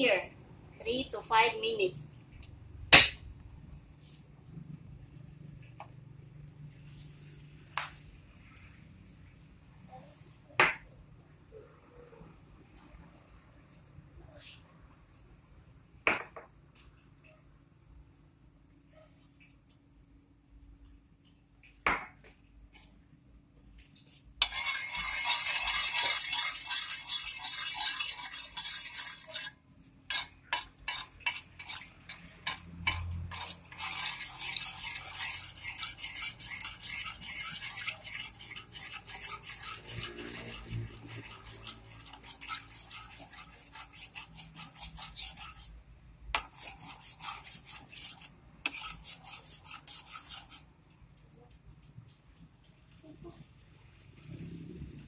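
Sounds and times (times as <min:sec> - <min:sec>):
metal spoon scraping sugar in pan: 0:24.1 - 0:45.8, 0:46.4 - 0:50.7.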